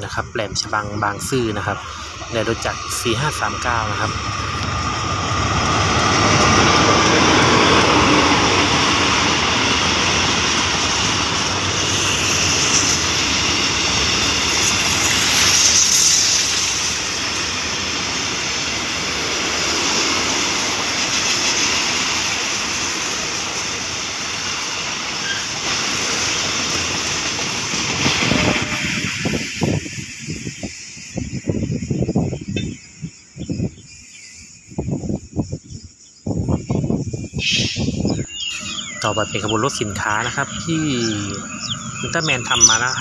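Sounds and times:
diesel locomotive engine: 0.0s - 35.3s, 36.8s - 43.0s
freight wagons rolling over rails: 3.2s - 29.6s.

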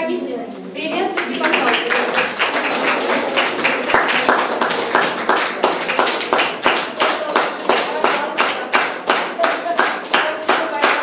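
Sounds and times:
audience applauding: 1.2s - 11.0s.

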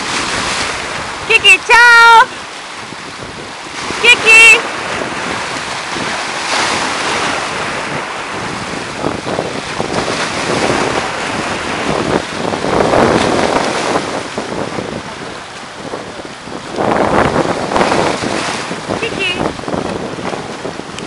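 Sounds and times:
waves slapping and splashing: 0.0s - 21.0s
wind buffeting microphone: 0.0s - 21.0s.

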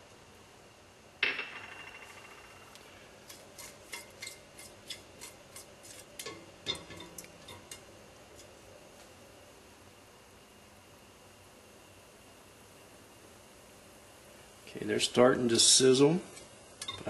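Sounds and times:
spatula scraping a pot: 3.2s - 6.4s.

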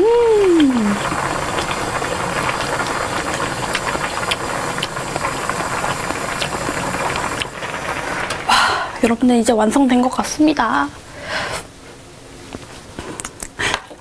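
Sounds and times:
stew boiling hard: 0.0s - 11.0s.

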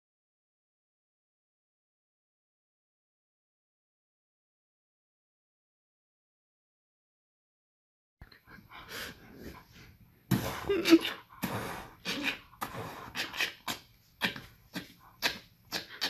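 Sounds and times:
dog making breathy vocal noises: 8.4s - 16.0s.

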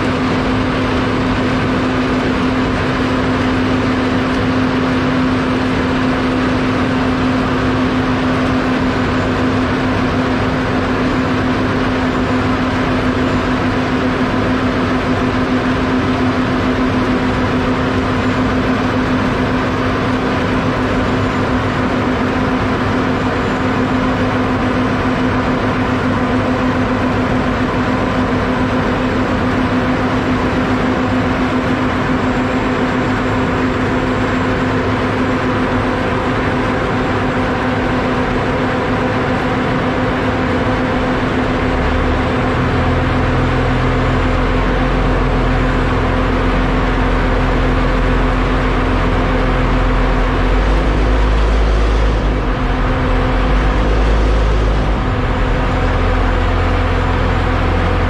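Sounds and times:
diesel machine drone: 0.0s - 58.0s.

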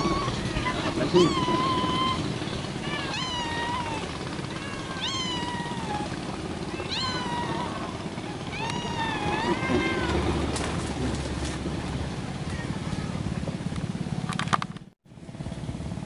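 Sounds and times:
cat meowing: 0.0s - 10.4s
low hum: 0.0s - 16.0s.

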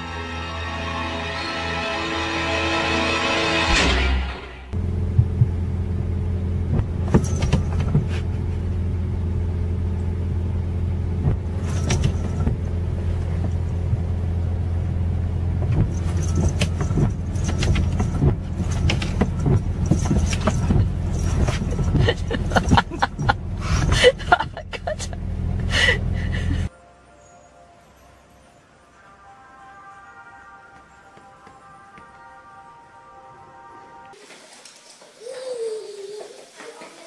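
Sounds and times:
car engine idling: 4.7s - 26.7s.

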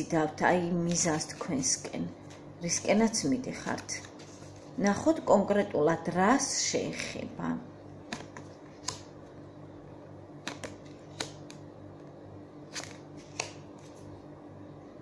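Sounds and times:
low steady hum: 0.0s - 15.0s
cards shuffling and clicking: 8.1s - 9.1s, 10.4s - 11.6s, 12.7s - 14.1s.

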